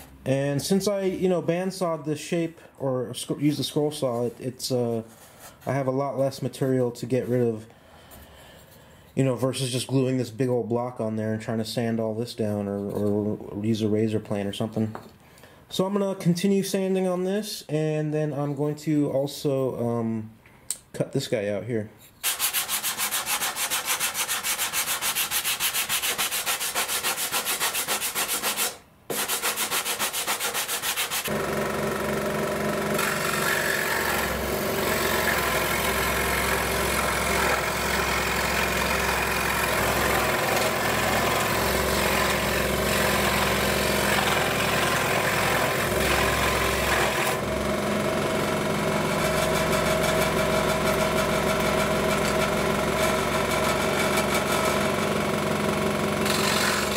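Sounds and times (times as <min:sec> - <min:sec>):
hand sanding wood: 0:22.2 - 0:31.3
scroll saw cutting wood: 0:22.2 - 0:55.2, 0:56.2 - 0:56.9.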